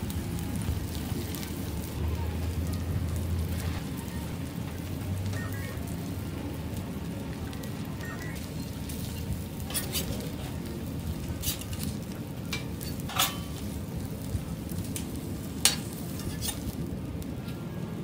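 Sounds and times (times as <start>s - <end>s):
egg sizzling on griddle: 0.0s - 18.0s
metal spatula scraping and tapping: 9.0s - 10.1s, 12.5s - 13.6s, 15.0s - 16.8s.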